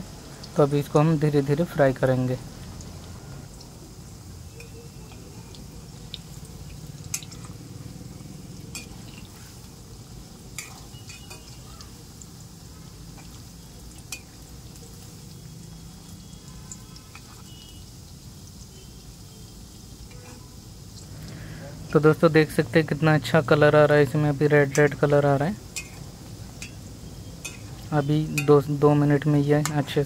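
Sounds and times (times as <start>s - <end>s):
food deep-frying in oil: 0.0s - 30.0s
metal ladle clinking on pan: 8.7s - 9.2s, 10.6s - 11.6s, 25.8s - 26.0s, 26.6s - 26.8s, 27.4s - 28.6s.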